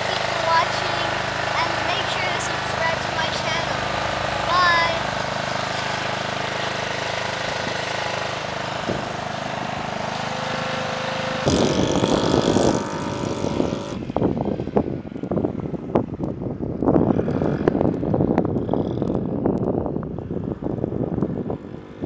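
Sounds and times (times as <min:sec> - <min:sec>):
wind buffeting microphone: 0:00.0 - 0:10.1, 0:11.3 - 0:22.0
go-kart engine: 0:00.0 - 0:22.0.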